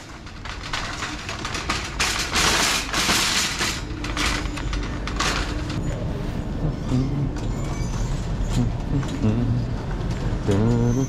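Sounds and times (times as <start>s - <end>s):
plastic shopping cart rattling: 0.0s - 5.8s.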